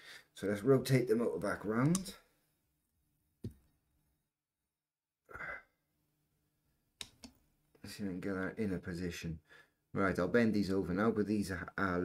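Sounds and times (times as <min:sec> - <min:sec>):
person exhaling: 0:05.3 - 0:05.7.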